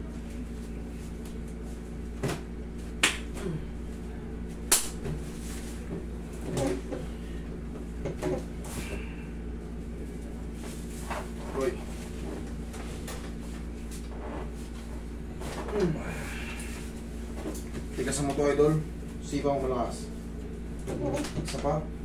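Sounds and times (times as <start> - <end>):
steady low hum: 0.0 - 22.0
soft creaks and rustles: 10.6 - 15.9.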